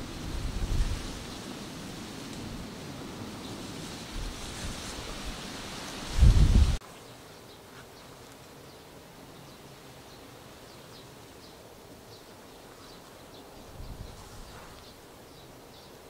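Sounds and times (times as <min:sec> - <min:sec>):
wind buffeting microphone: 0:00.0 - 0:06.8, 0:13.5 - 0:15.0
small birds chirping: 0:06.8 - 0:16.0.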